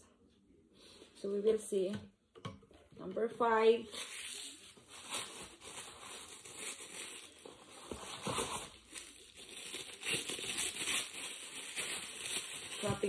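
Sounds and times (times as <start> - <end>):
tissue paper rustling: 3.9 - 13.0.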